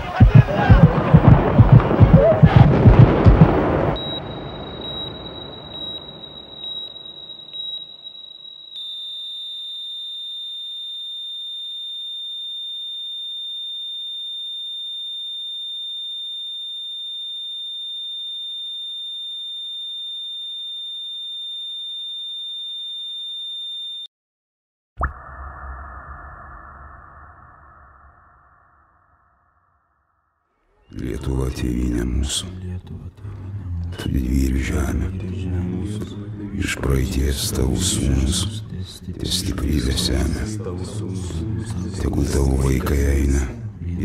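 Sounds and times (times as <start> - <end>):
loud blasts and rumble: 0.0 - 6.8
high-pitched electronic tone: 4.0 - 9.3.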